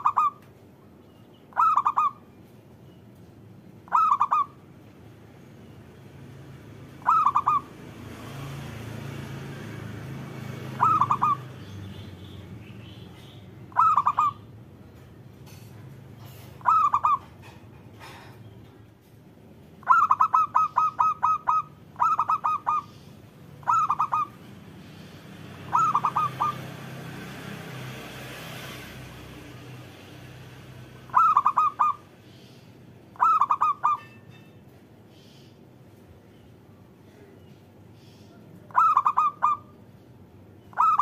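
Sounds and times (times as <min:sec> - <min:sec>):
dove cooing: 0:00.0 - 0:00.4, 0:01.5 - 0:02.2, 0:03.9 - 0:04.6, 0:07.0 - 0:07.7, 0:10.6 - 0:11.5, 0:13.7 - 0:14.4, 0:16.2 - 0:18.2, 0:19.8 - 0:24.5, 0:25.6 - 0:26.7, 0:31.1 - 0:32.1, 0:33.2 - 0:34.1, 0:38.7 - 0:39.7, 0:40.7 - 0:41.0.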